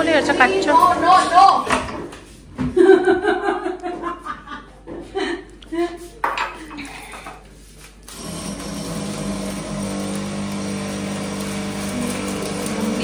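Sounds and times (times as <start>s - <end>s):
kitchen appliance motor whirring: 0.0s - 1.5s, 8.1s - 13.0s.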